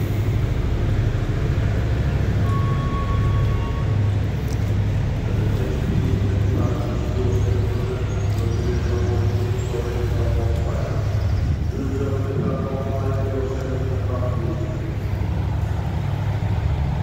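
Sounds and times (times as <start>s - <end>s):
diesel train engine droning: 0.0s - 17.0s
short high tone: 2.4s - 4.0s.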